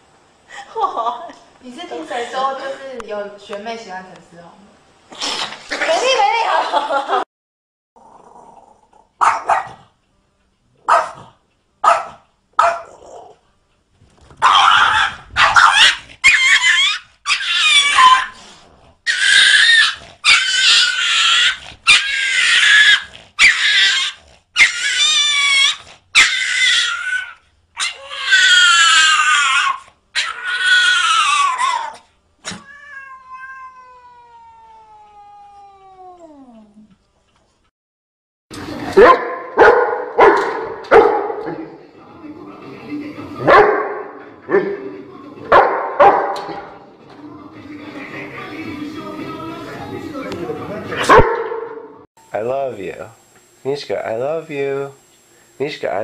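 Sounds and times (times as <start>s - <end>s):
dog yipping: 9.2s - 9.8s, 10.9s - 11.2s, 11.8s - 13.0s, 14.4s - 18.4s, 19.1s - 33.8s
drawn-out yowls and howls: 14.5s - 18.4s, 19.1s - 32.0s.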